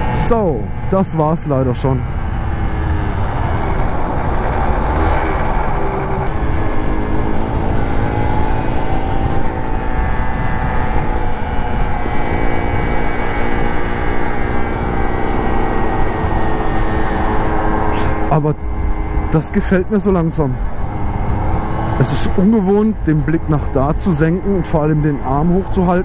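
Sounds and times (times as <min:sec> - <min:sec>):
wind rumble on microphone: 0:00.0 - 0:26.0
scooter engine running: 0:01.8 - 0:19.5.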